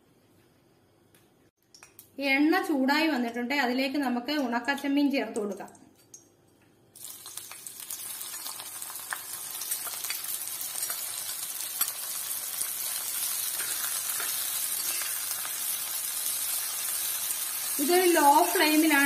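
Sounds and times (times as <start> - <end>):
prawns sizzling in hot oil: 7.0 - 19.0.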